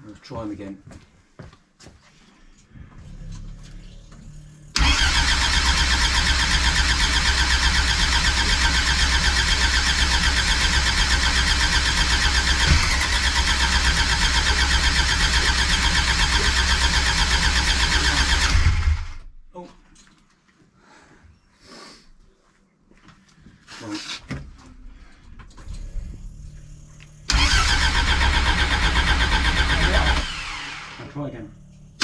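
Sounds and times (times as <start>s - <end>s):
starter motor cranking engine: 4.2s - 19.2s, 25.4s - 32.0s
engine knock: 4.8s - 19.2s, 27.3s - 30.8s.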